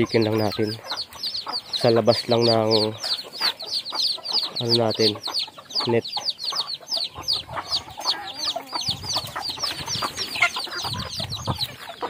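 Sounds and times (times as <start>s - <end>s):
chicks peeping: 0.0s - 12.0s
hens clucking: 0.0s - 12.0s.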